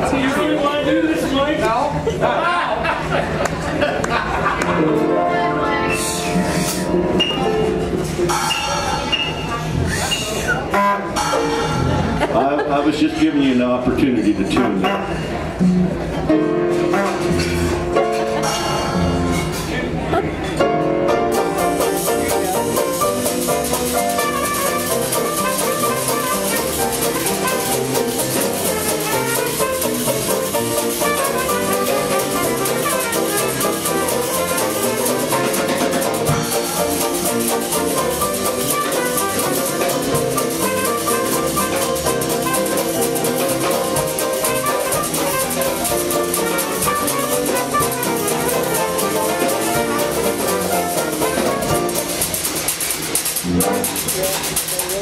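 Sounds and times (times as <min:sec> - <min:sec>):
jazz band playing: 0:00.0 - 0:02.1, 0:03.0 - 0:55.0
washboard scraping rhythm: 0:21.2 - 0:55.0.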